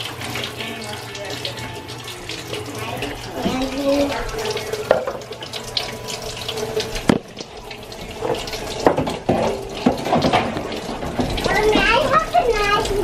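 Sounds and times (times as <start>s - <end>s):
faucet running into steel sink: 0.0s - 13.0s
dishes clinking: 4.6s - 5.4s, 8.2s - 11.9s.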